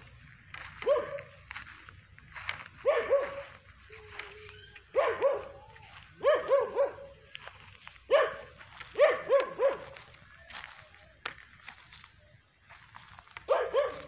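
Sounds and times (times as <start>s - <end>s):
dog barking: 0.7s - 1.4s, 2.8s - 3.7s, 4.9s - 7.2s, 8.1s - 10.2s, 13.4s - 14.0s.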